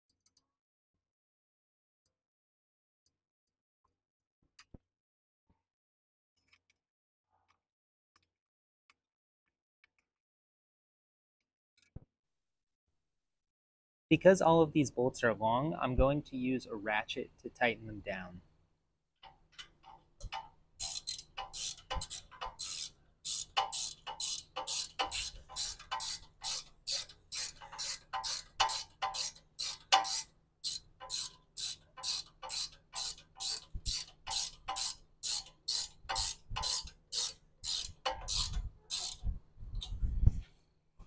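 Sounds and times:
socket ratchet clicking: 19.6s - 39.3s.

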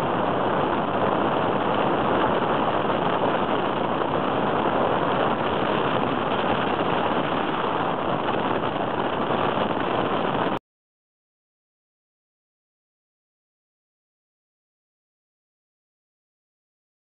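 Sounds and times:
small aircraft engine in flight: 0.0s - 10.6s.

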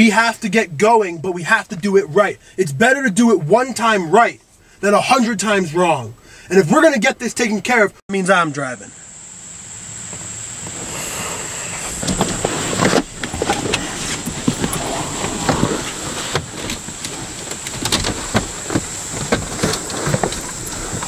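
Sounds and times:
rustling clothes and upholstery: 10.6s - 21.0s.

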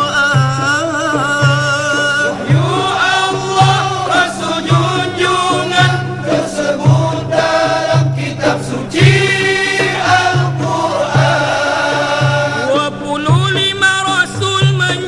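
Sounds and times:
male choir singing in harmony: 0.0s - 15.0s
low repeating pulse: 2.2s - 13.0s.

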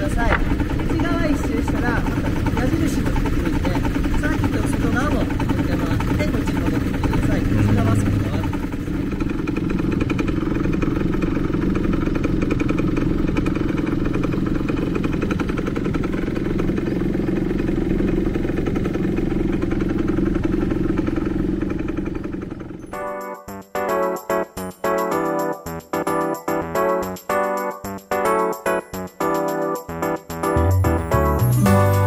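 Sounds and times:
quad engine idling: 0.0s - 23.0s
piano music: 22.8s - 32.0s.

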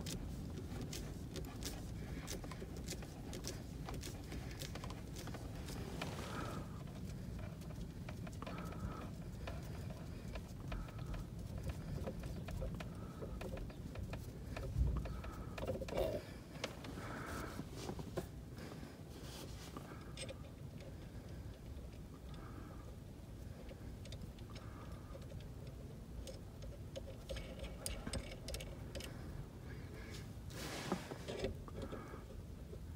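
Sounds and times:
handling rustle: 0.0s - 20.4s, 26.3s - 32.1s.

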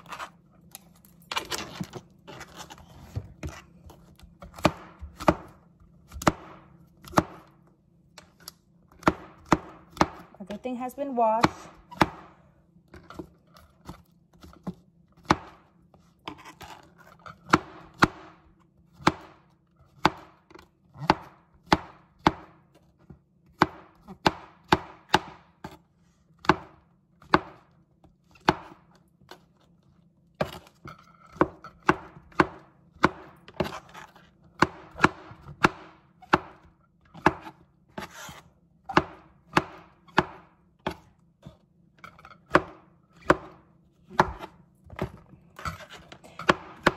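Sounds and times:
knife chopping on cutting board: 2.3s - 7.6s, 9.0s - 10.4s, 11.4s - 12.3s, 13.1s - 15.6s, 17.4s - 18.4s, 19.0s - 19.4s, 20.0s - 22.6s, 23.5s - 25.8s, 26.4s - 27.7s, 28.3s - 28.9s, 31.3s - 34.0s, 34.6s - 41.6s, 42.5s - 46.9s.

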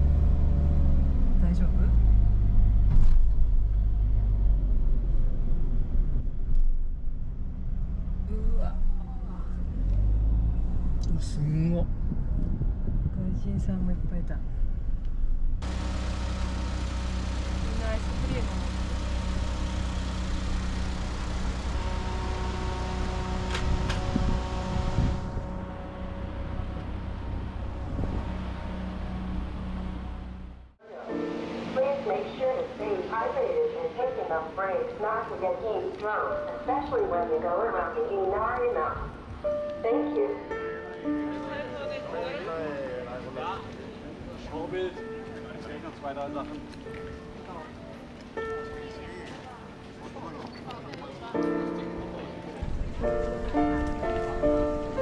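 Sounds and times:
van driving rumble: 0.0s - 30.8s, 52.4s - 55.0s
vehicle engine idling: 14.8s - 30.8s.

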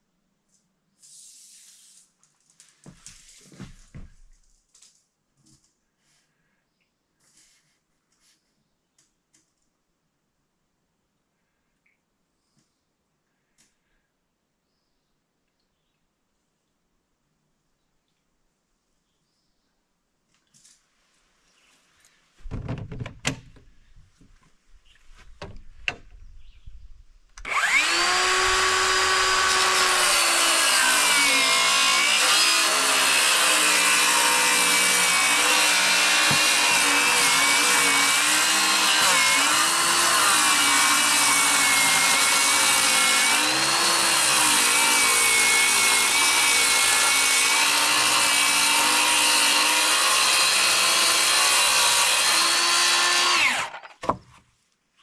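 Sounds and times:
knocks and clicks: 22.4s - 23.7s
circular saw cutting plywood: 27.4s - 54.2s.

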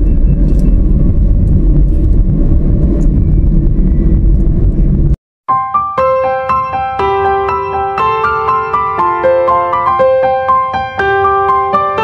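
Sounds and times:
car engine and tyre noise: 0.0s - 5.2s
piano-like keyboard music: 5.5s - 12.0s.

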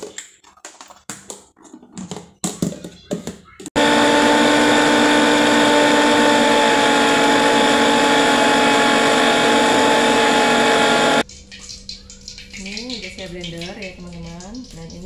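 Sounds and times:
electric blender grinding: 3.8s - 11.2s.

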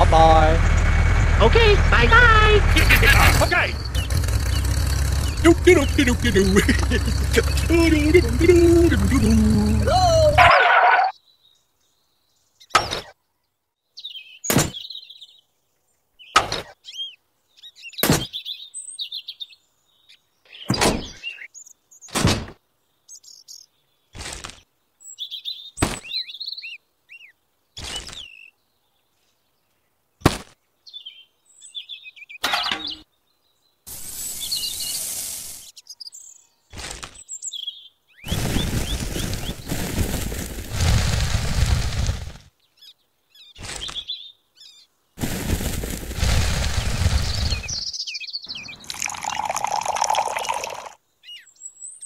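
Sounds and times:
bird chirps: 2.1s - 22.2s, 23.0s - 29.7s, 30.8s - 39.9s, 42.6s - 45.0s, 46.8s - 52.0s
short hiss: 33.9s - 35.8s.

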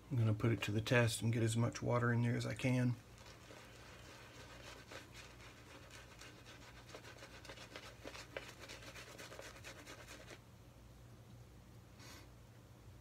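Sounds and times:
shaving brush rubbing lather: 3.0s - 10.4s.

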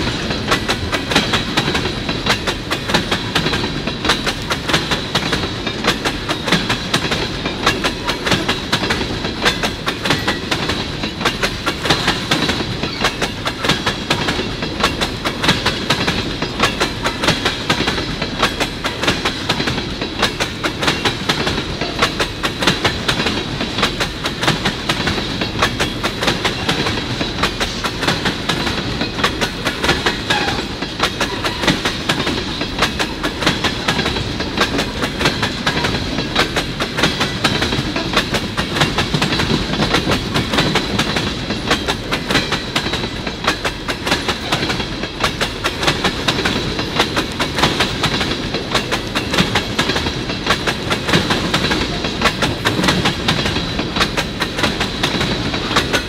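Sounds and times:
clickety-clack over rail joints: 0.0s - 56.0s
freight train wheels rumbling on rail: 0.0s - 56.0s.

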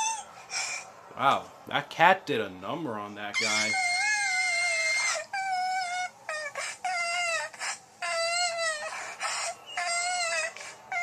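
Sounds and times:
cartoon cats crying: 0.0s - 0.7s, 3.4s - 11.0s.

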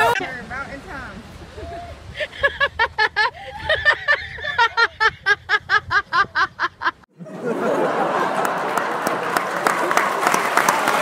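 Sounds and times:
person laughing: 2.2s - 7.0s
applause and cheering: 7.8s - 11.0s.

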